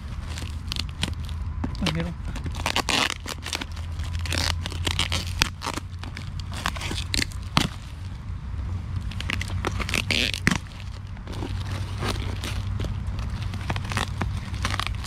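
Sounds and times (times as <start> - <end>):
packaging being torn and crumpled: 0.2 - 8.0, 9.1 - 15.0.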